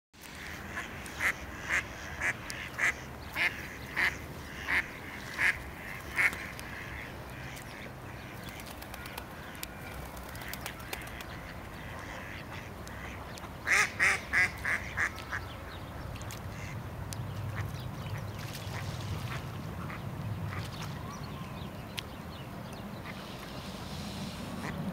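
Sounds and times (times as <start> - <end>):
duck quacking: 0.7 - 7.9, 11.0 - 15.1.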